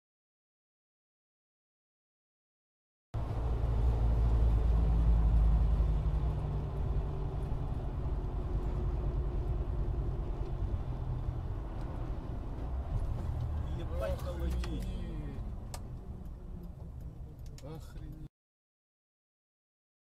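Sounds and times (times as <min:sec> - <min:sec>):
car interior road rumble: 0:03.2 - 0:18.3.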